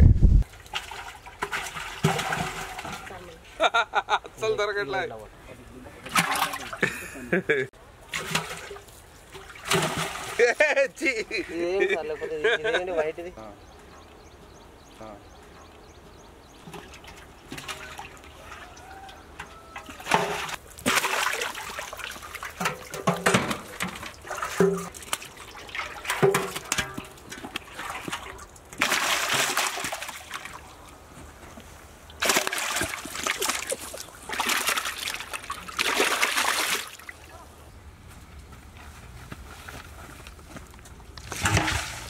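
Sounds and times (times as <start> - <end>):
fish splashing in water: 16.8 - 22.7, 27.6 - 30.8, 32.2 - 37.3.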